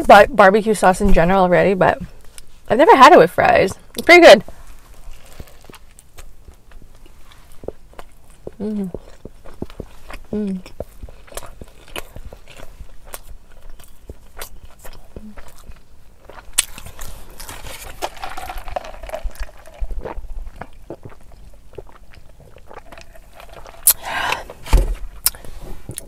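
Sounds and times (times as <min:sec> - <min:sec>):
person chewing and eating: 0:04.5 - 0:26.0
mouth clicks and smacks: 0:25.2 - 0:26.0.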